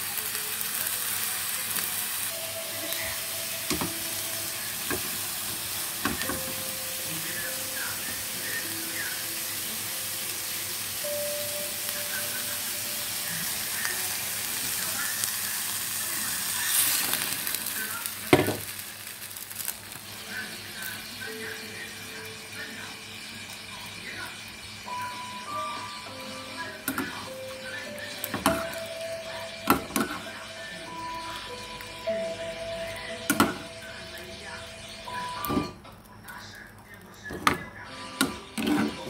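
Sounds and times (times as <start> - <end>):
pork sizzling in a pan: 0.0 - 39.0
loud hiss of water in pan: 12.1 - 21.4.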